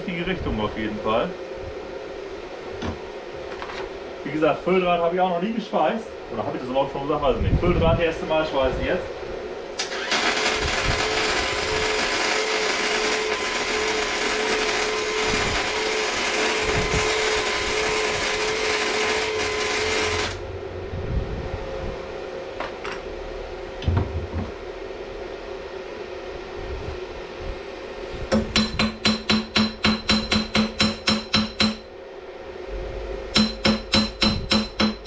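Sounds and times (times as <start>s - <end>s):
welding arc crackling: 9.8s - 20.4s
welder hum: 9.8s - 21.0s, 28.0s - 35.0s.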